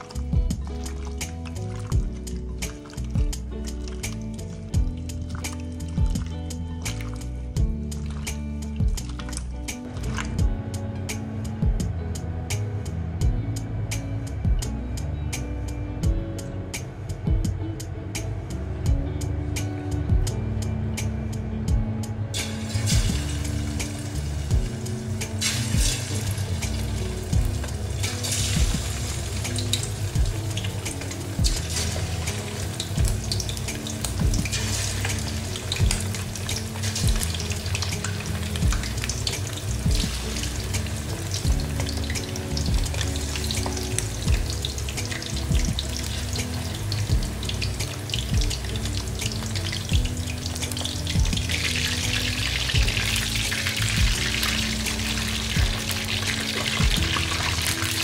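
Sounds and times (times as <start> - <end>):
background music: 0.0 - 58.0
chicken sizzling in hot oil: 22.4 - 58.0.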